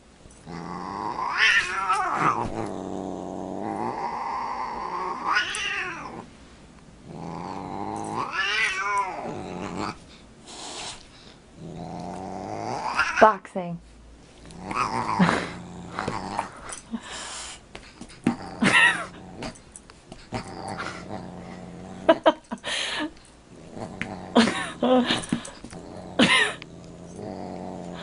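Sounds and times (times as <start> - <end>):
cat growling and yowling: 0.5 - 6.3, 7.1 - 10.0, 11.6 - 13.2, 14.5 - 16.5.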